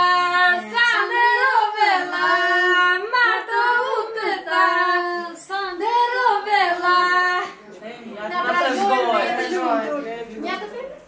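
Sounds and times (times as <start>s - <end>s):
women singing unaccompanied: 0.0s - 7.6s.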